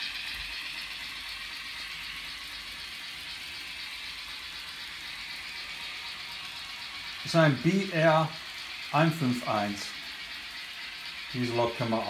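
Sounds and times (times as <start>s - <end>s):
model train rattling whir: 0.0s - 12.0s.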